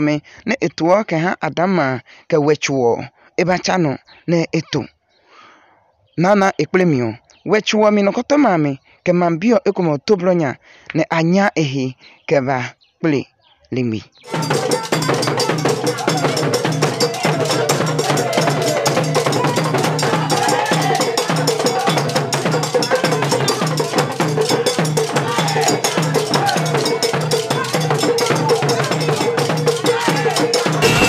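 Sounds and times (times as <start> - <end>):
women singing: 14.3 - 22.4
sticks and metal bell percussion: 14.3 - 31.0.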